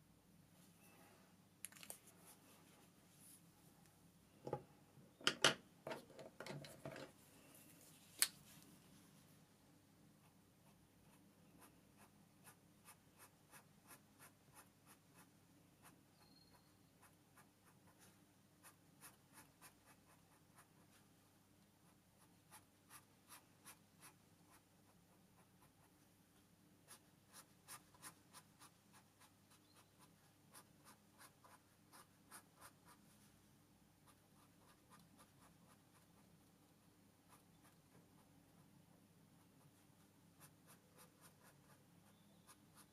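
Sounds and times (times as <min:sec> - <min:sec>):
felt-tip pen scratching on paper: 0:10.6 - 0:21.0, 0:21.8 - 0:26.0, 0:26.9 - 0:33.0.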